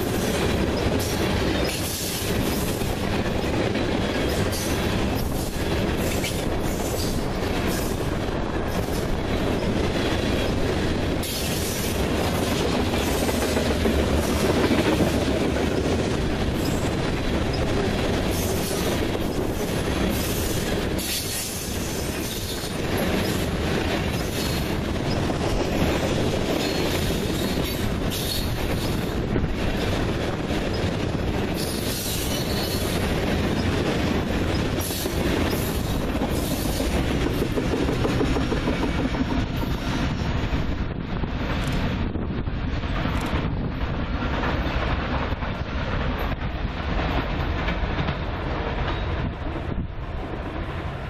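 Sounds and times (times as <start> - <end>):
wheels clacking over rail joints: 0.0 - 40.2
train wheels rumbling on rail: 0.0 - 51.0.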